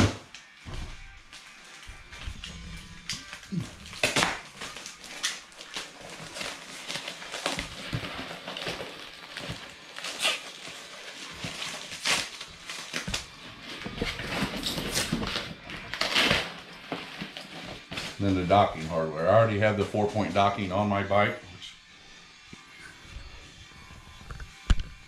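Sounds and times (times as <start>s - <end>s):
plastic bag rustling and crinkling: 1.6s - 20.7s.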